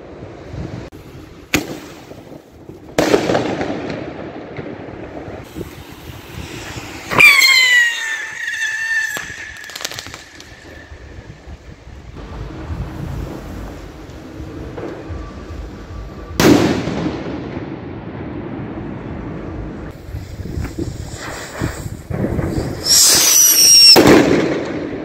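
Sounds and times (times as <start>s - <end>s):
firework crackling: 0.7s - 25.0s
firecracker bangs: 1.5s - 11.6s, 16.3s - 18.5s, 20.6s - 25.0s
firework whistle: 5.4s - 11.7s, 13.2s - 17.1s, 20.0s - 24.9s.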